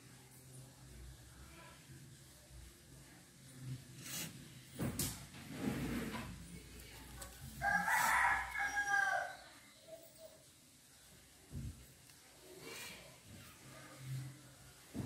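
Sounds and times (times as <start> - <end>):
rooster crowing: 7.6 - 9.6.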